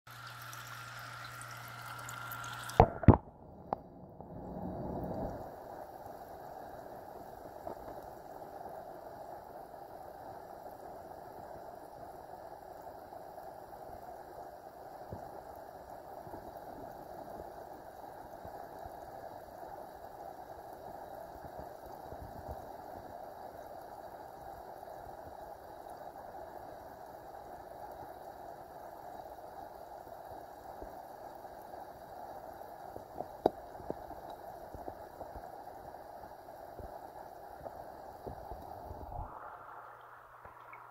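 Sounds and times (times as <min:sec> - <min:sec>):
water bubbling: 0:00.1 - 0:09.0, 0:32.5 - 0:40.9.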